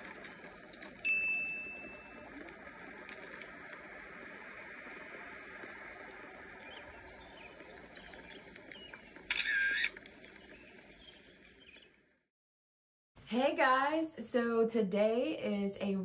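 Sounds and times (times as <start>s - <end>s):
camera shutter click: 9.3s - 10.0s.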